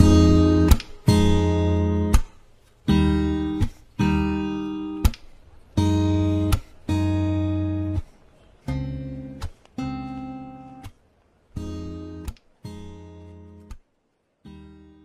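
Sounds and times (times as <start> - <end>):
percussive guitar stroke: 0.0 - 11.0
acoustic guitar strumming: 0.0 - 15.0.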